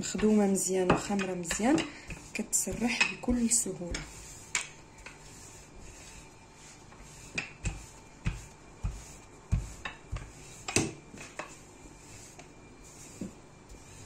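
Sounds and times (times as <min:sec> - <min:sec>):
rolling pin knocking on worktop: 0:07.3 - 0:11.0.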